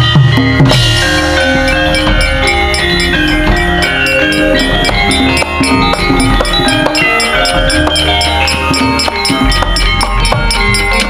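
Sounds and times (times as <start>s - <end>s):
drum strokes: 0.0s - 11.0s
metallophones ringing: 0.0s - 11.0s.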